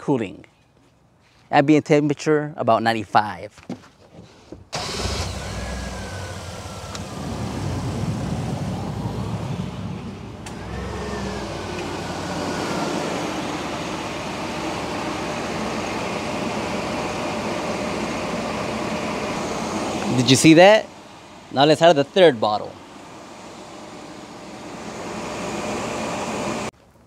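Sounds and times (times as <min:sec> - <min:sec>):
car engine idling: 0:04.8 - 0:21.5, 0:22.7 - 0:26.7
air conditioning blower: 0:04.8 - 0:26.7.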